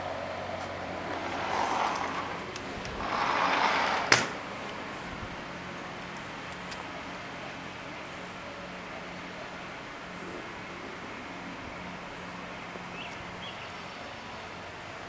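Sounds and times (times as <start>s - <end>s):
sliding door rolling: 0.6s - 5.3s.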